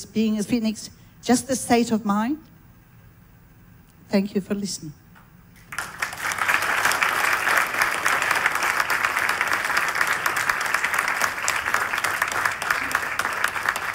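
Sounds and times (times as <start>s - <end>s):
audience applauding: 5.6s - 13.9s.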